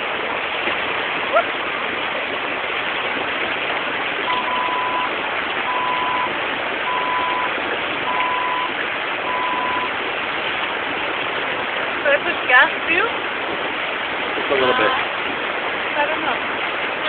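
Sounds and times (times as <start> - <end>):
rushing river water: 0.0 - 17.0
dashboard warning chime beeping: 4.3 - 9.9.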